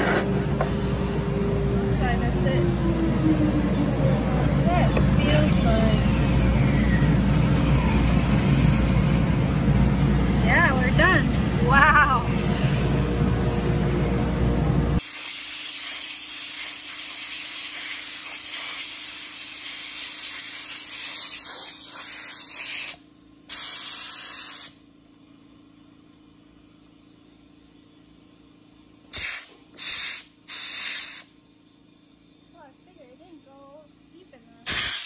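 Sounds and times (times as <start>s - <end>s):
compressed air blow gun hissing: 15.0s - 24.8s, 29.1s - 31.3s, 34.6s - 35.0s.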